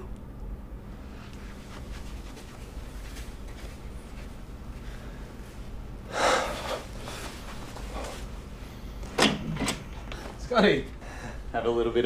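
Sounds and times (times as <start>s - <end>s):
faint soft rustles: 0.9s - 5.8s, 6.6s - 8.8s.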